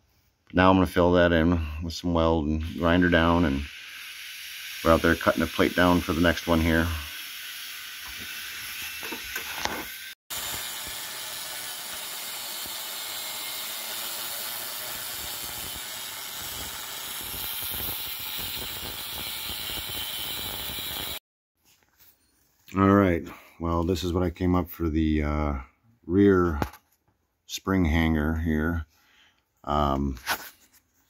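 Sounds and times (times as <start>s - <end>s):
angle grinder cutting steel: 2.6s - 21.2s.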